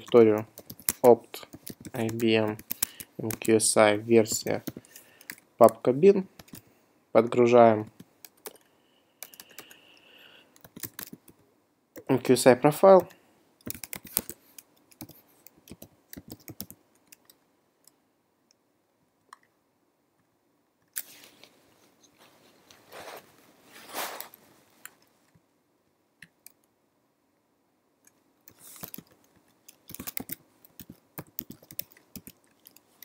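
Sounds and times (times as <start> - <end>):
computer keyboard keys clicking: 0.0 - 3.5, 9.2 - 9.8, 10.6 - 11.4, 13.0 - 17.4, 28.5 - 32.8.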